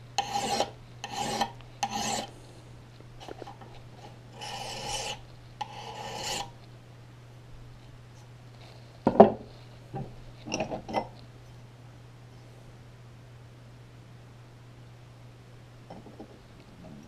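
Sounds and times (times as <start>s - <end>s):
file scraping metal edge: 0.2s - 2.3s, 4.0s - 6.6s.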